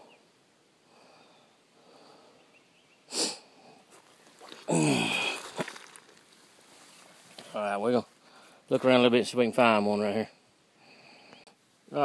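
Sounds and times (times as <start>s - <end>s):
man sniffing: 3.1s - 3.5s.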